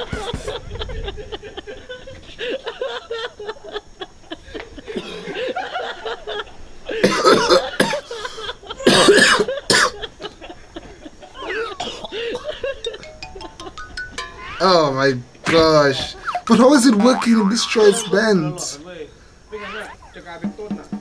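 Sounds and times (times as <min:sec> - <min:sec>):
low voices and chuckling: 0:00.0 - 0:08.9, 0:09.5 - 0:18.8, 0:19.5 - 0:20.6
person coughing: 0:07.0 - 0:08.0, 0:08.9 - 0:10.0.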